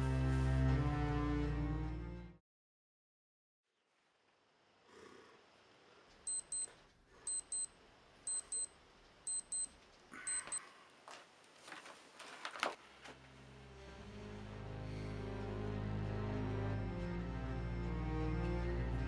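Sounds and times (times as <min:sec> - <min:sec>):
digital alarm double beeps: 0:06.3 - 0:06.7, 0:07.3 - 0:07.7, 0:08.3 - 0:08.7, 0:09.3 - 0:09.7, 0:10.3 - 0:10.6.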